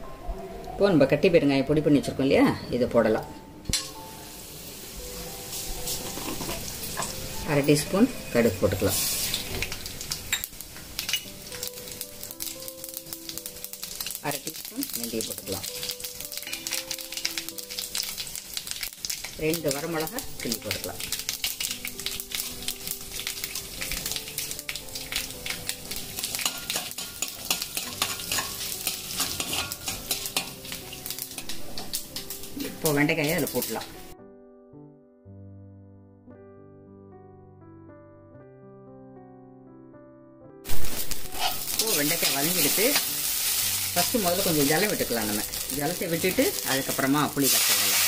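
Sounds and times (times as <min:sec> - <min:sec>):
seeds crackling in hot oil: 0:03.8 - 0:34.0, 0:40.7 - 0:48.0
steel spoon scraping pan: 0:26.4 - 0:30.8, 0:41.2 - 0:43.1.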